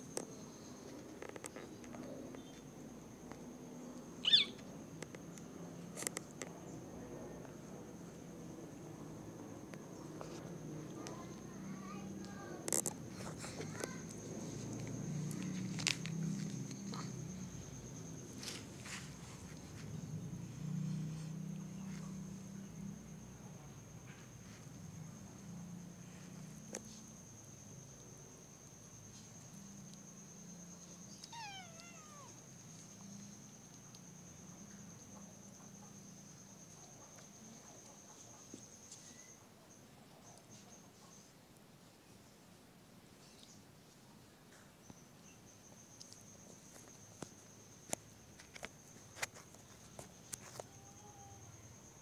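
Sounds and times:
high-pitched insect trill: 0.0 - 6.8, 9.8 - 39.4, 44.8 - 52.0
kitten meowing: 4.2 - 4.6, 31.2 - 32.4.

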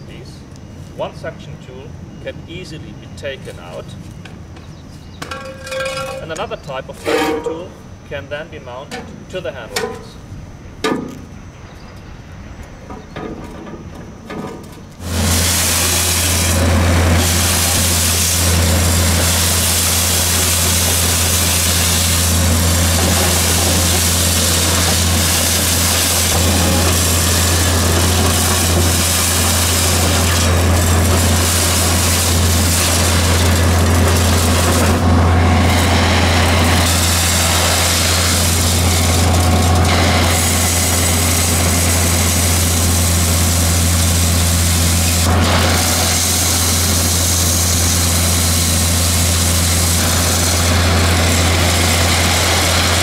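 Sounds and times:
air and gravel rushing through hose: 15.0 - 53.0
diesel engine hum: 15.0 - 53.0.

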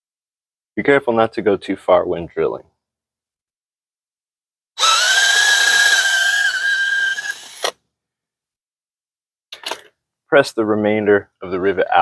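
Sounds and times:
cordless drill whining: 4.8 - 7.8.

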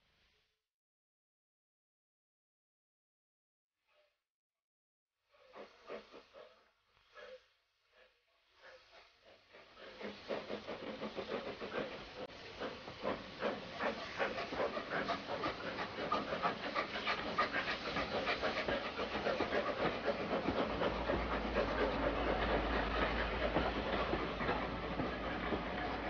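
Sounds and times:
steam locomotive chuffing: 5.4 - 26.0.

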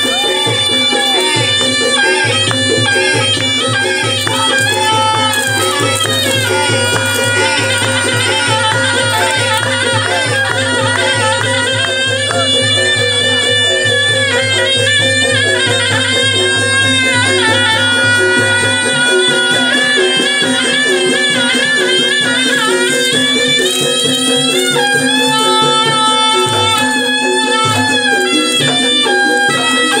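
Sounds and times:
drum beat: 0.0 - 30.0
reedy wind instrument melody: 0.0 - 30.0.

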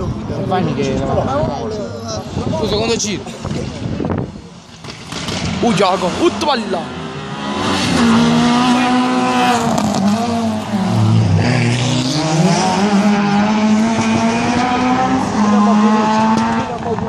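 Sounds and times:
car engine revving hard: 4.9 - 17.0.

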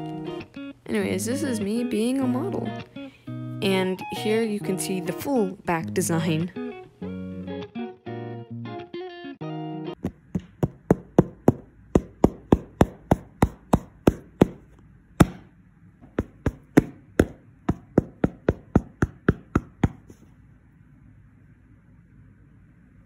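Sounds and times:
fingernails tapping on panel: 10.0 - 15.5, 16.1 - 20.2.

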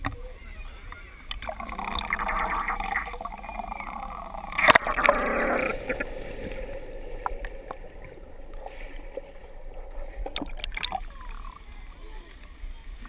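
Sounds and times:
underwater bubbling and churning: 1.2 - 13.0
water sloshing and gurgling: 1.2 - 13.0
water clicking against camera housing: 1.3 - 1.5, 10.2 - 11.5.

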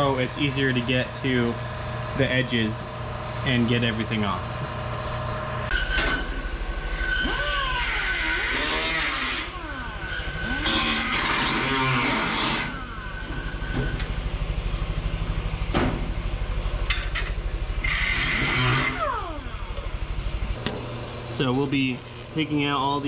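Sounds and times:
steady low hum: 0.0 - 23.0
pneumatic cut-off tool whine: 5.7 - 14.4, 17.8 - 20.6.

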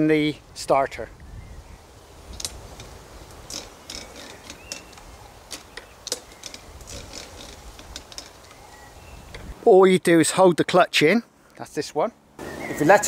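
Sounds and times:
recoil starter cord clicks: 2.3 - 2.9.

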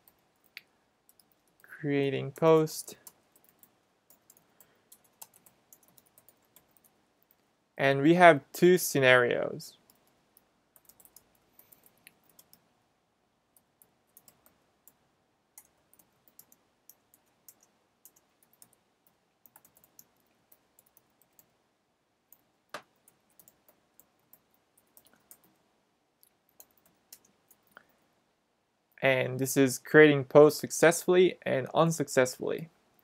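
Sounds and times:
computer keyboard typing: 0.0 - 1.7, 2.9 - 7.4, 9.8 - 12.7, 13.6 - 15.0, 15.6 - 21.6, 22.3 - 25.6, 26.5 - 27.9.

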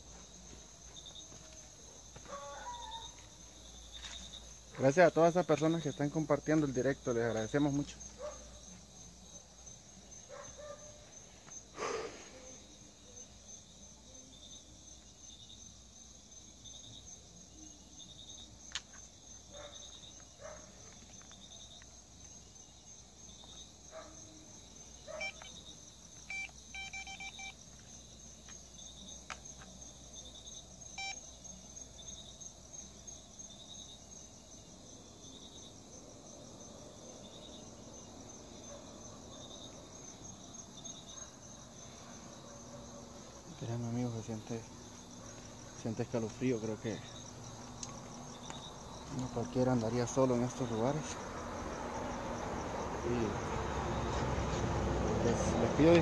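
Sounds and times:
night insects chirping: 0.0 - 56.0
electronic beeping: 26.3 - 27.5.

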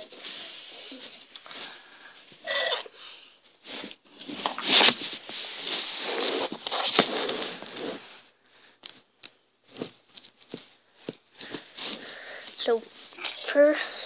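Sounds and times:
camera handling rustle: 13.1 - 13.5.

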